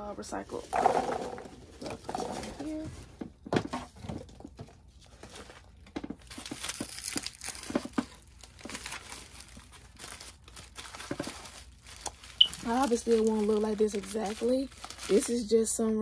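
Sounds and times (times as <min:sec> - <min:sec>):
bubble wrap crinkling: 0:04.8 - 0:15.7.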